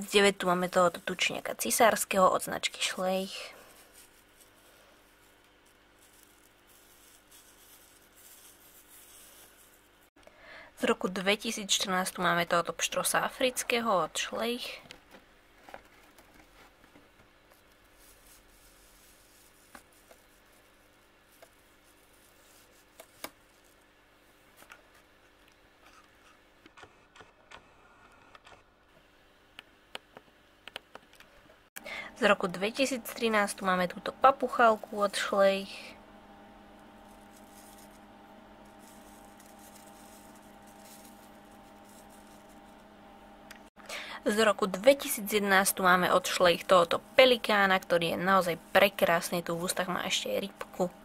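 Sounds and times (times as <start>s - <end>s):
faint steady hum: 0.0s - 51.0s
plastic figurine rustling on artificial grass: 2.8s - 10.1s, 15.6s - 24.6s, 37.0s - 38.0s, 38.6s - 42.8s
steady low hum: 31.4s - 51.0s.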